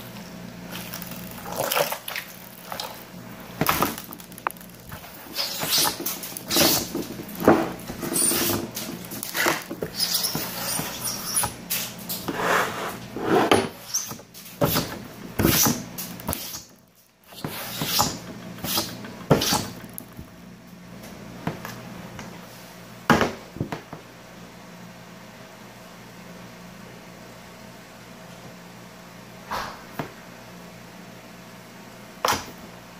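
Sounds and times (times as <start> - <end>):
slime squelching and popping: 0.7 - 6.8.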